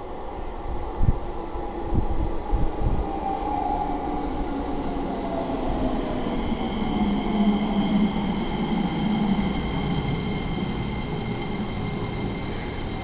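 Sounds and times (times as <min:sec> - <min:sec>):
high steady whine tones: 0:03.0 - 0:13.0
electric train braking: 0:05.6 - 0:13.0.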